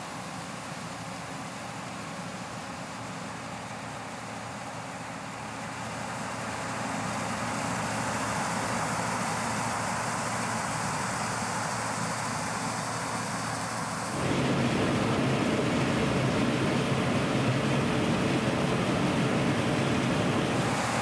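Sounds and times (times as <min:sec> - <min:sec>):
combine harvester droning: 0:05.6 - 0:21.0.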